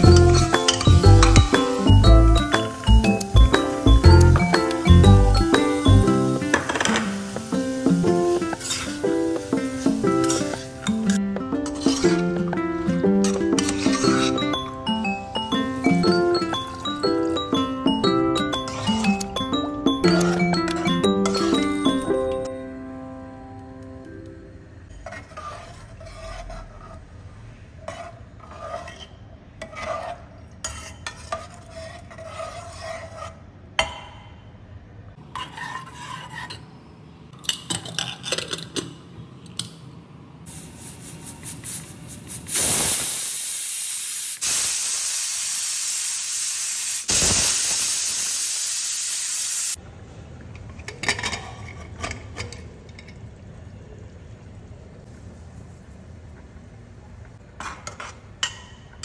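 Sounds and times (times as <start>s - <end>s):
metal spoon scraping cooker: 0.0s - 1.5s, 10.2s - 12.3s, 13.2s - 14.6s, 24.9s - 27.0s, 27.8s - 33.4s
steam hissing from valve: 40.5s - 49.8s.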